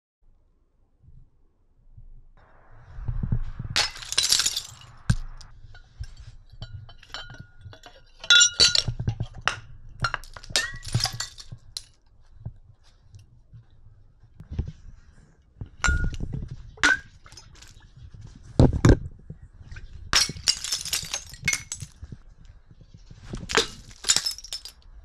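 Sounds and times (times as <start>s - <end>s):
glass clinking and ringing: 3.8s - 11.5s, 15.8s - 16.2s, 20.2s - 21.9s
glass bottles shattering: 3.8s - 11.9s, 16.8s - 17.8s, 20.1s - 22.0s, 23.4s - 24.8s.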